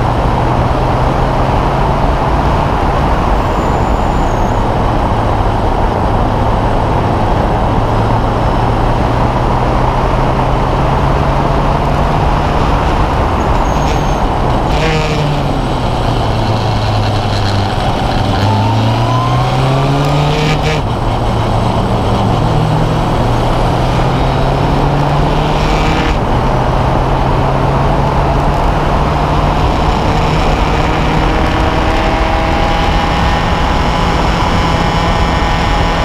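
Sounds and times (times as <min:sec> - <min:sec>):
race car engine: 0:00.0 - 0:36.0
wind and road noise: 0:00.0 - 0:36.0.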